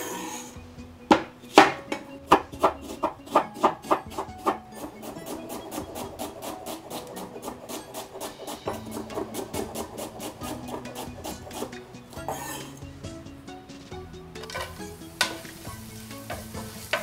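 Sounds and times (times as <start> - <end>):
knife chopping on wooden board: 1.1 - 11.7.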